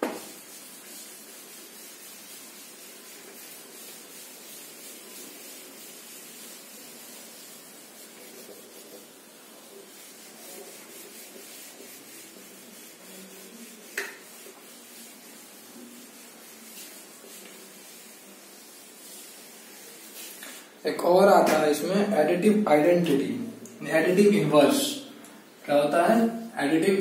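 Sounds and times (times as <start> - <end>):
eraser rubbing whiteboard: 0.0 - 20.8.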